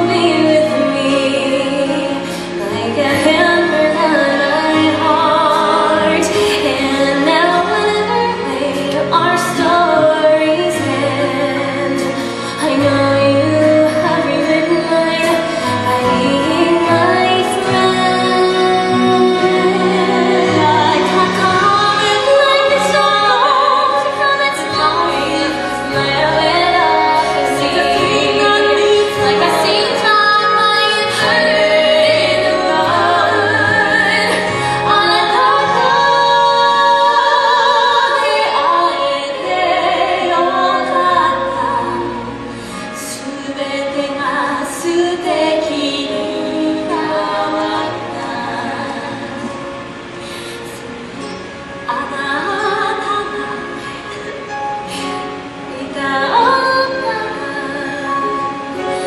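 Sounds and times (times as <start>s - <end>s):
instrumental accompaniment: 0.0s - 59.0s
woman singing: 0.0s - 59.0s.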